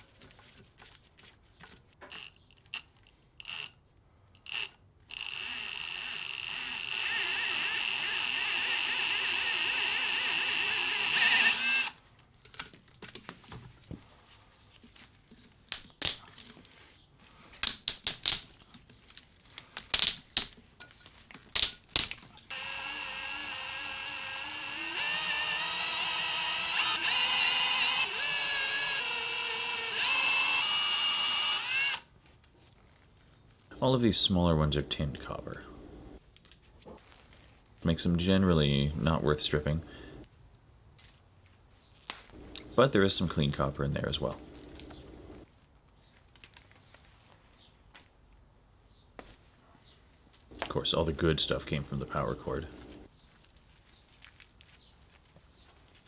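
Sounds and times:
cordless drill whine: 3.4 - 3.8, 4.4 - 12.0, 22.5 - 32.1.

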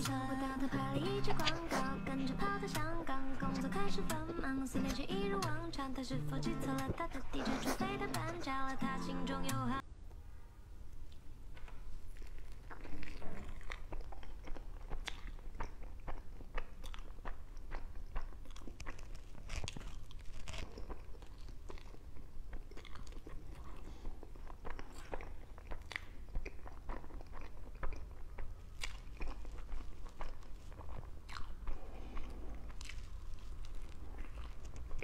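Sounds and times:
mouth smacks and clicks: 0.0 - 9.8, 11.1 - 35.0
person biting and chewing: 1.0 - 5.0, 11.6 - 35.0.

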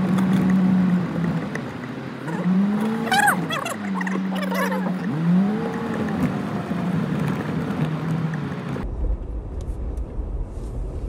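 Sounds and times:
vehicle engine revving unevenly: 0.0 - 8.8
low rumble of vehicle on track: 0.0 - 11.0.

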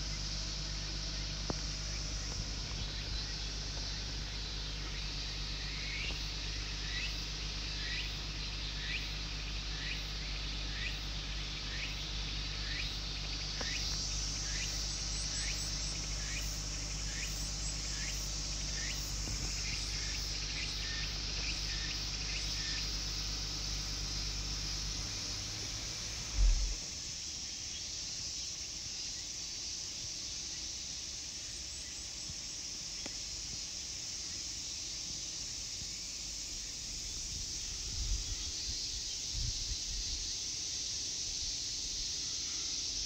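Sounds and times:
low hum: 0.0 - 8.9, 11.2 - 27.1
insect chirps: 0.0 - 43.0
insects shrilling: 0.0 - 43.0.

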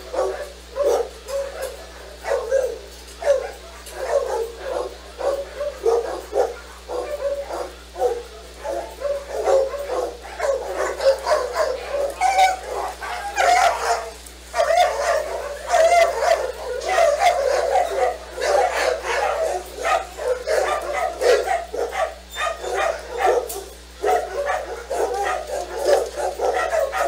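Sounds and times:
dogs barking in chorus: 0.0 - 27.0.

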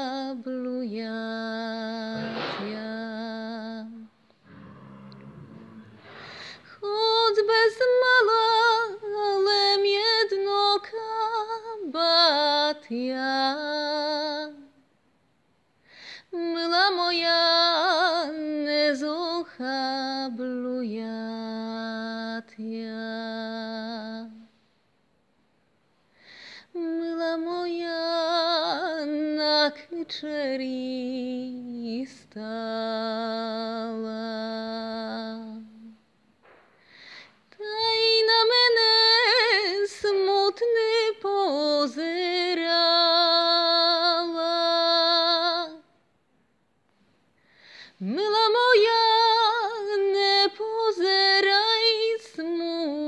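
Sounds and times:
woman singing folk song: 0.0 - 4.2, 6.2 - 14.8, 16.0 - 24.6, 26.4 - 36.0, 37.0 - 46.0, 47.7 - 53.0.

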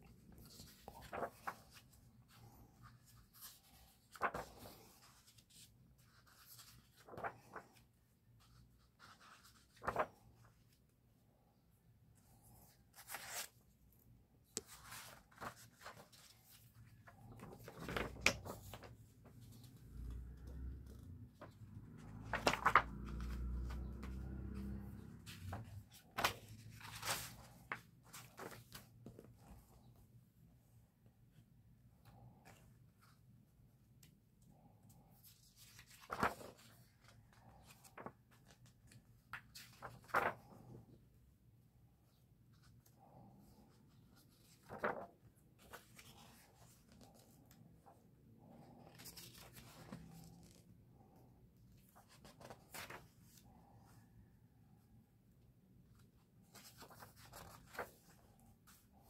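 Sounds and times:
paper pages rustling: 0.1 - 10.8, 12.2 - 13.7, 14.5 - 29.9, 35.2 - 40.8, 42.6 - 48.0, 48.6 - 50.6, 51.8 - 53.5, 55.9 - 59.0
hand brushing over paper: 0.4 - 5.5.

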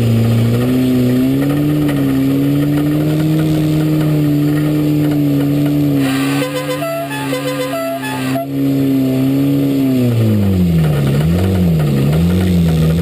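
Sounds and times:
race car engine from inside: 0.0 - 13.0
short high notes: 6.0 - 8.5.

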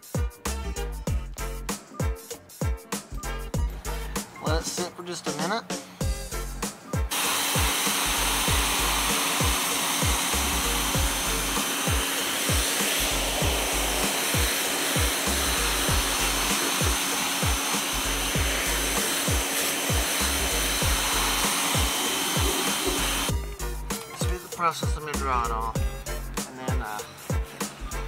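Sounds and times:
background music with kick drum: 0.0 - 28.0
pressure washer spraying: 6.6 - 23.3.

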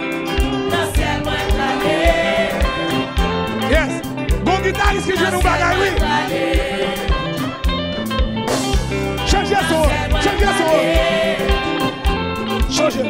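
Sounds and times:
people singing: 0.0 - 4.1, 4.7 - 7.8, 9.2 - 12.3
drum kit and congas: 0.0 - 12.8
bass guitar: 0.0 - 13.0
electric guitar: 0.0 - 13.0.

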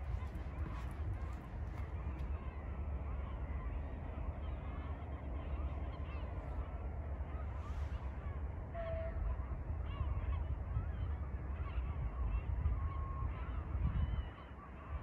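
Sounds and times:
steady low rumble: 0.0 - 8.7.

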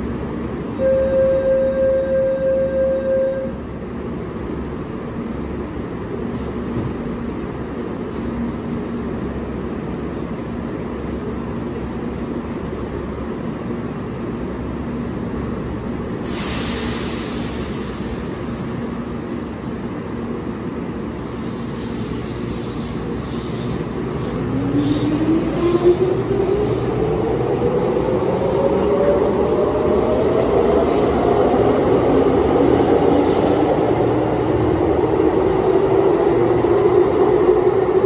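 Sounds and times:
electric train humming: 0.0 - 38.0
compressed air hiss: 16.2 - 18.7, 21.2 - 25.1.

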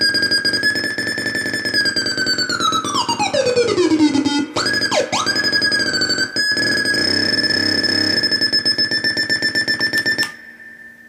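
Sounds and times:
electronic theremin tone: 0.0 - 11.0.

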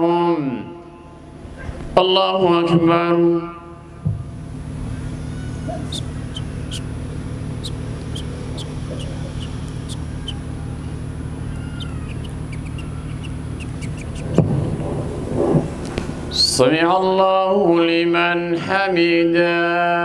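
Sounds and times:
low electrical hum: 0.0 - 20.0
small birds chirping: 4.5 - 14.8, 15.9 - 16.6.

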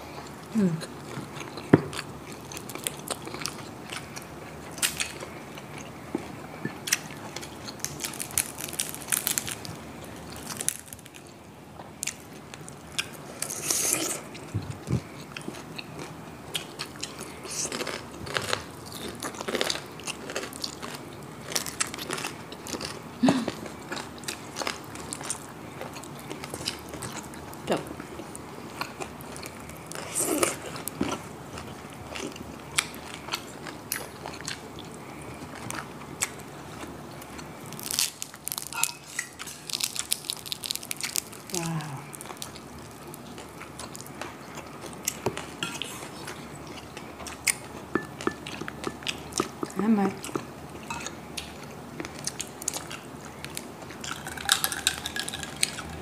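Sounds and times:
soft chewing: 0.0 - 56.0
crunching crispy pork skin: 7.0 - 11.3, 35.7 - 47.9, 51.5 - 56.0.

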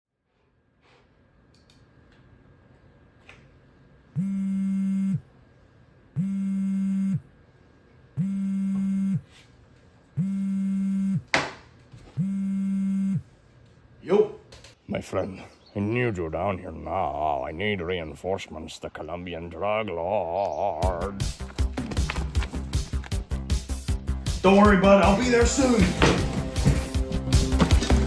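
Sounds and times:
buzzy telephone ringing tone: 4.2 - 5.3, 6.2 - 7.3, 8.2 - 9.3, 10.2 - 11.2, 12.2 - 13.3.

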